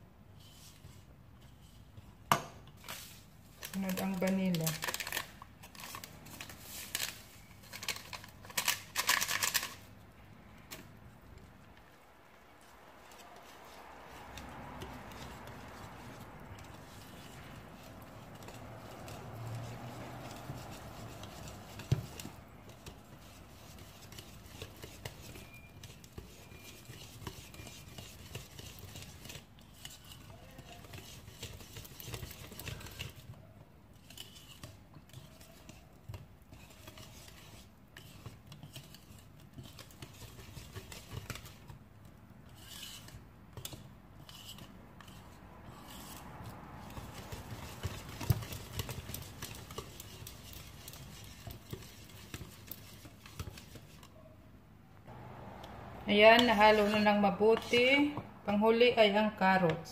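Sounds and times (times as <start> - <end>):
whisk beating batter in bowl: 12.6 - 46.2, 46.8 - 54.2
whisk knocking bowl: 14.8 - 33.3, 46.8 - 54.1.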